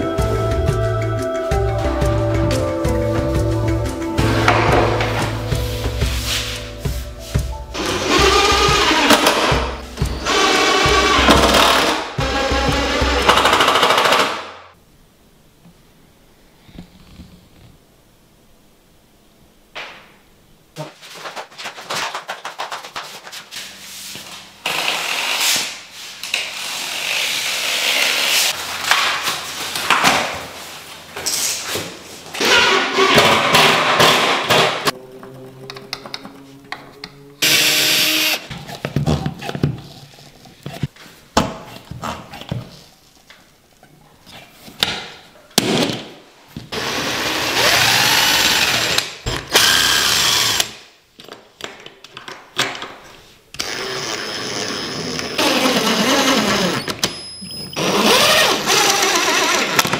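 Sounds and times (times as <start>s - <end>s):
cordless drill drilling: 10.2s - 14.2s, 37.4s - 38.5s, 46.8s - 50.7s, 53.6s - 56.9s, 57.8s - 59.9s.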